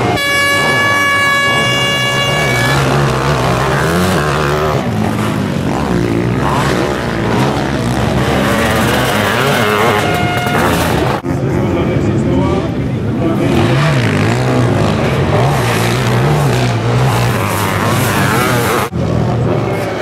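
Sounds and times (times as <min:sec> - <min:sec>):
air horn: 0:00.0 - 0:04.8, 0:08.7 - 0:11.2
motorcycle engines revving: 0:00.0 - 0:20.0.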